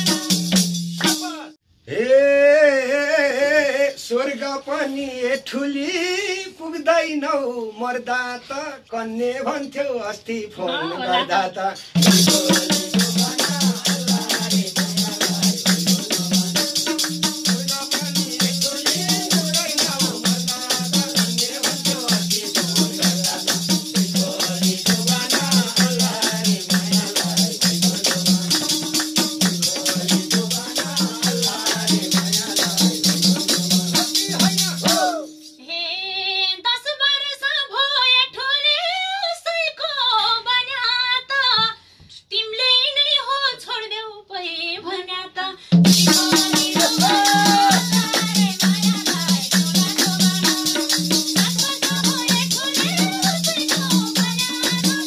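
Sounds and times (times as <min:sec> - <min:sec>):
group singing: 0:00.0 - 0:00.6, 0:10.5 - 0:35.5, 0:45.9 - 0:55.0
woman singing unaccompanied: 0:00.0 - 0:00.6, 0:10.6 - 0:33.0, 0:34.3 - 0:55.0
hand drum beating: 0:00.0 - 0:01.5, 0:12.0 - 0:35.2, 0:45.8 - 0:55.0
tambourine jingling: 0:00.0 - 0:01.5, 0:11.9 - 0:35.6, 0:45.8 - 0:55.0
hand claps: 0:12.2 - 0:23.8, 0:24.4 - 0:35.0, 0:46.1 - 0:55.0.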